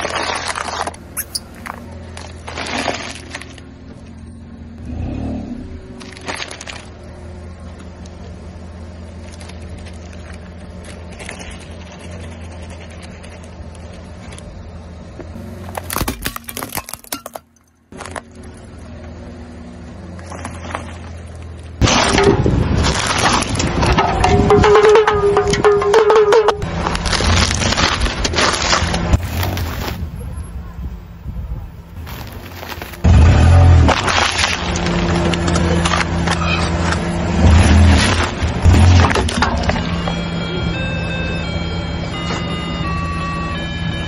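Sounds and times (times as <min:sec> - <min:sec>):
objects crunching under tyre: 0:00.0 - 0:04.2, 0:05.7 - 0:07.1, 0:09.0 - 0:19.1, 0:20.1 - 0:30.6, 0:31.9 - 0:40.4
car engine idling: 0:05.6 - 0:16.0.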